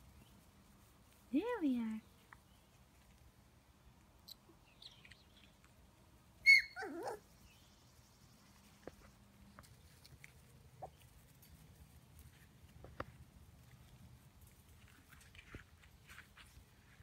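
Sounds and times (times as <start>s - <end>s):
puppy yelping and whimpering: 6.4s - 7.2s.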